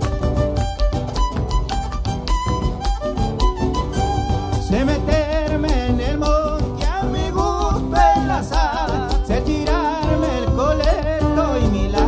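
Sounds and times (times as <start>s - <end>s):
violin melody with vibrato: 0.0s - 5.3s
bass drum beat: 0.0s - 12.0s
guitar: 0.0s - 12.0s.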